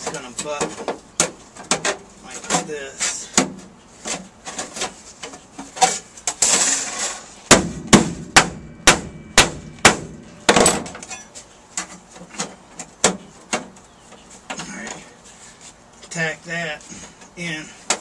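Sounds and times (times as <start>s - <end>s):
hammer striking sheet metal: 7.5s - 10.8s.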